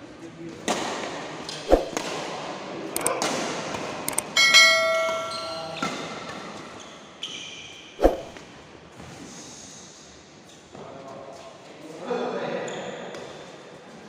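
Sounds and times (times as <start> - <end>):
ringing bell chime effect: 4.4 - 6.1.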